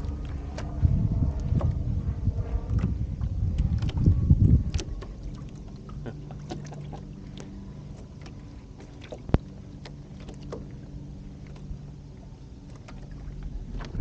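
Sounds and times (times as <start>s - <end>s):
low hum: 0.0s - 14.0s
water lapping against hull: 0.0s - 14.0s
boat fittings clicking and knocking: 3.6s - 5.6s.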